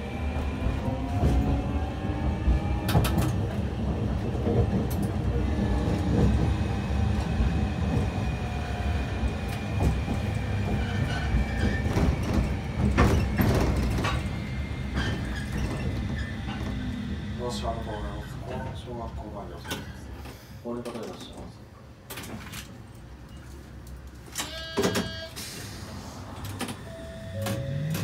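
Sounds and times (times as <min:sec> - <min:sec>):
tram wheels rumbling on track: 0:00.0 - 0:20.4.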